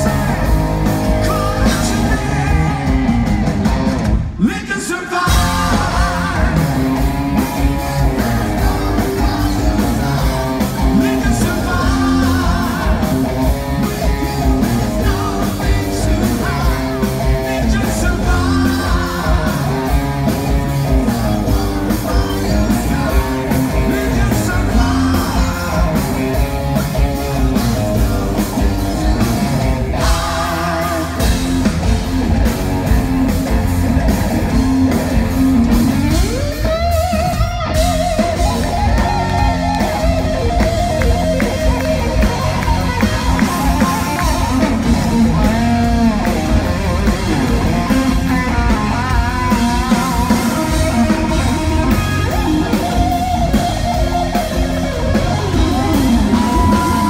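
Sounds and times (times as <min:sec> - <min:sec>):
hard rock band playing: 0:00.0 - 0:57.0
electric guitar solo: 0:32.6 - 0:57.0.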